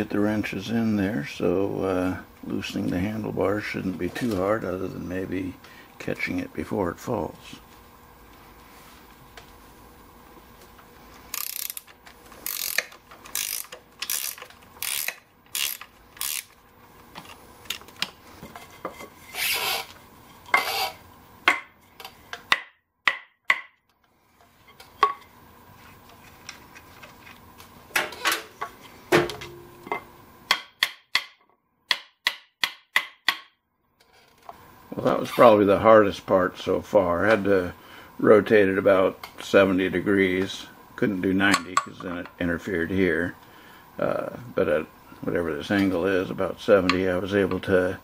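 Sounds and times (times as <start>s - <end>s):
ratchet wrench strokes: 11.3s - 16.6s, 19.3s - 19.9s, 20.6s - 21.0s.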